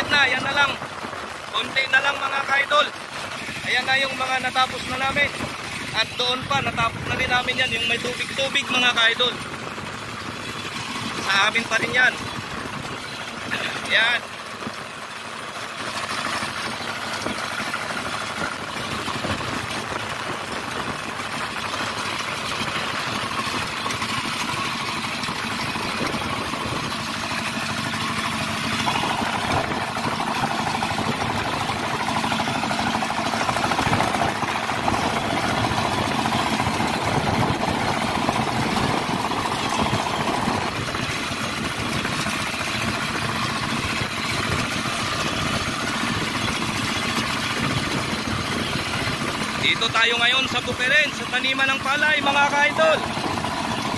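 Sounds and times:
diesel engine running under load: 0.0 - 53.9.

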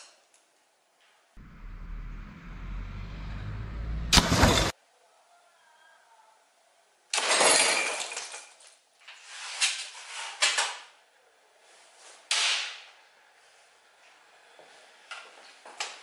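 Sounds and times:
sharp hit: 1.4 - 4.7
glass jar shattering: 7.2 - 8.6.

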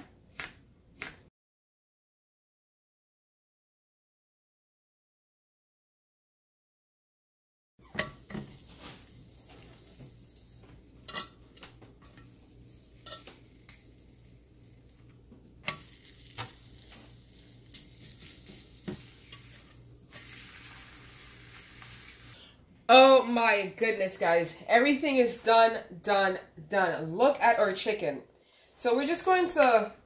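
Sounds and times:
tortilla sizzling in grill pan: 7.9 - 22.4.

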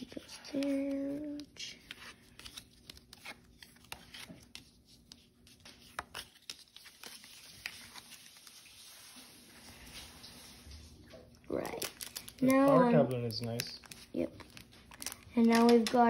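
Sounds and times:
trading cards shuffling and tapping: 0.0 - 8.6, 12.5 - 16.0.

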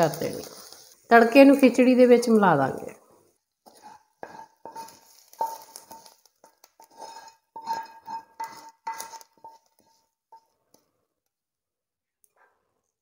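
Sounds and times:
spoon clinking and scraping pan: 0.0 - 1.8, 3.6 - 10.9.

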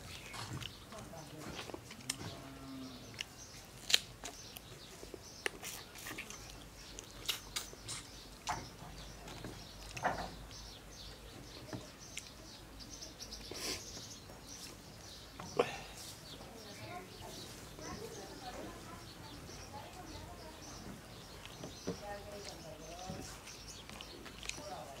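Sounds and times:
man chewing with wet mouth smacks: 0.0 - 0.9, 3.1 - 10.5, 21.3 - 21.6, 23.4 - 25.0.

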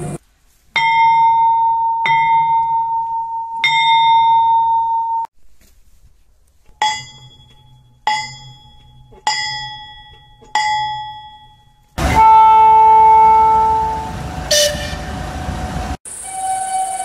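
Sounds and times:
large warning bell ringing: 0.8 - 5.3, 6.8 - 15.2.

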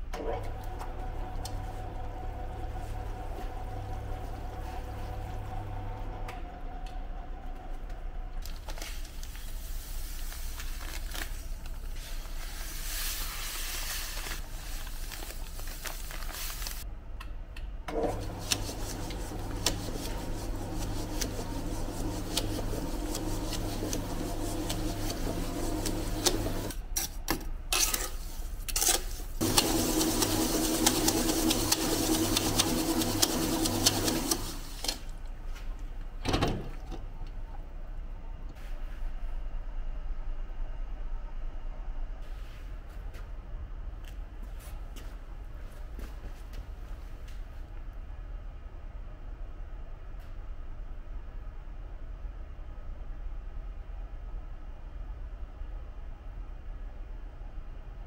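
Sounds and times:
mortar mixer running: 0.4 - 6.8, 17.9 - 26.7, 29.4 - 35.0.

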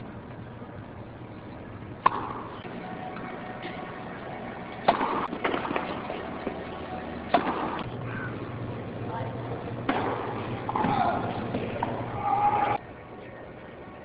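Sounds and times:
tennis racket striking ball: 2.0 - 2.6, 4.8 - 5.9, 7.3 - 7.9, 9.9 - 12.0
light ball hits and bounces: 4.8 - 6.6.

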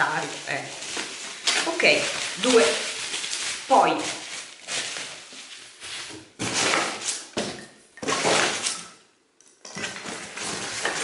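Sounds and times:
paper and plastic packaging crinkling: 0.0 - 7.4, 9.8 - 11.0.

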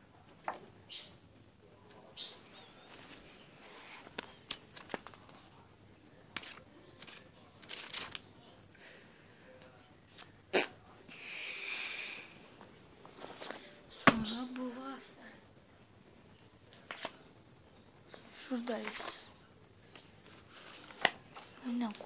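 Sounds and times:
notebook clicks and rustles: 2.9 - 5.6, 6.3 - 8.3, 16.7 - 17.2, 19.8 - 22.0.

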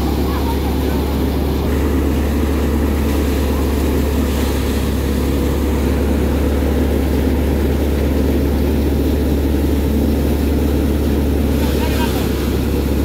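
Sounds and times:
thresher and tractor drone: 0.0 - 13.0.

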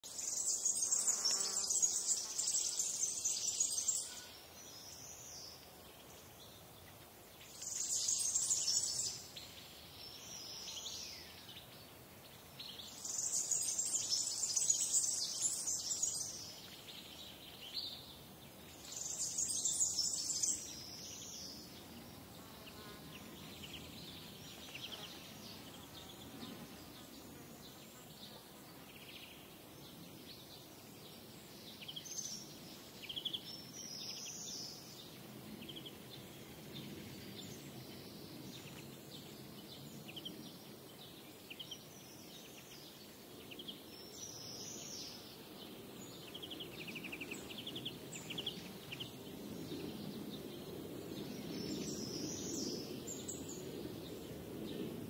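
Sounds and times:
songbirds chirping and whistling: 6.2 - 11.7, 12.6 - 22.3.

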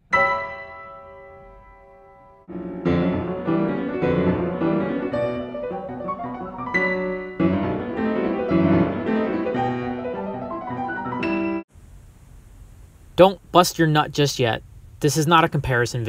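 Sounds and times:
piano notes and chords: 0.0 - 11.7.

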